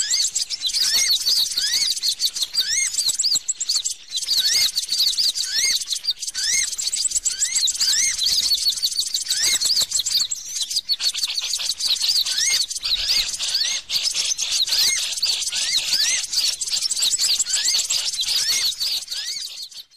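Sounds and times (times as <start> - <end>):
songbirds chirping: 0.0 - 19.9
whistled bird note: 4.2 - 19.9.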